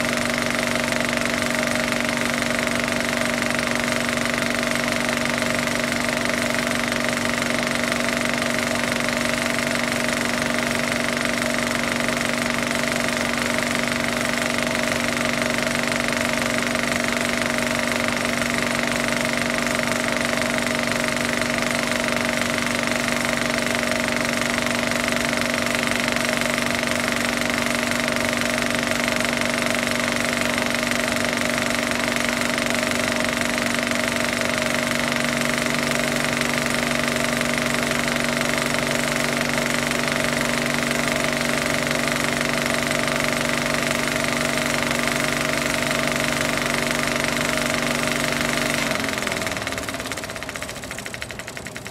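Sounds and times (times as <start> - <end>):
small motor rattling and humming: 0.0 - 51.9.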